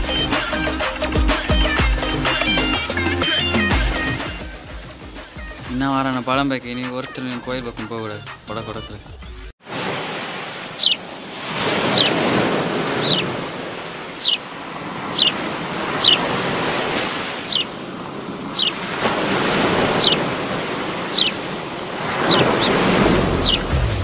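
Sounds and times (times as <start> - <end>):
ocean surf washing on beach: 9.6 - 24.0
high falling chirp: 10.8 - 11.0, 11.9 - 12.2, 13.0 - 13.4, 14.2 - 14.5, 15.1 - 16.3, 17.4 - 17.8, 18.5 - 18.8, 19.9 - 20.4, 21.1 - 21.4.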